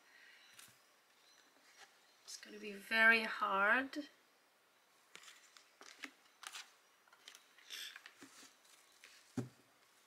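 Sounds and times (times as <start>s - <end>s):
cards rustling and clicking: 5.1s - 9.4s.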